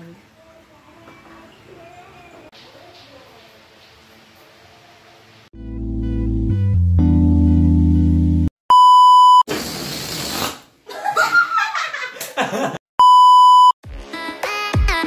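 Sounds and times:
one-tone bleep: 8.7 - 9.4, 13.0 - 13.8
hiss: 9.5 - 10.6
music with a beat: 13.8 - 15.0.

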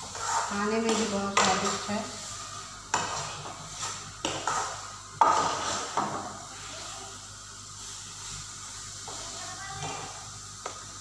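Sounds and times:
spoon scraping frying pan: 0.0 - 6.2
food frying hiss: 0.0 - 11.0.

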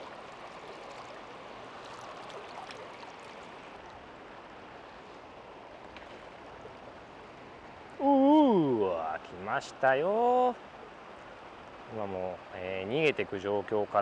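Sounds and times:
river water rushing: 0.0 - 9.4.

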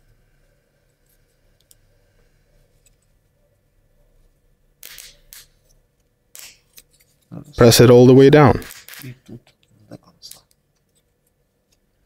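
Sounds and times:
faint wooden parts clicking: 8.7 - 12.0.

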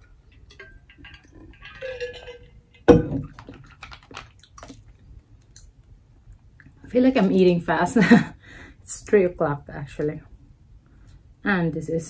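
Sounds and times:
mussel shells clicking: 3.3 - 4.8.

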